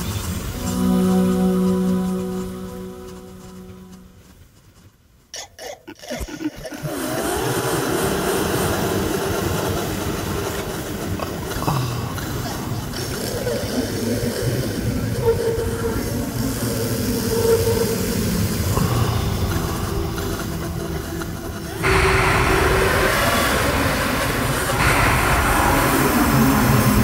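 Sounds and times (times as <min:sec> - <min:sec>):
sustained tone: 0:00.0 - 0:04.6, 0:14.2 - 0:27.0
noisy electronic music: 0:00.5 - 0:04.2.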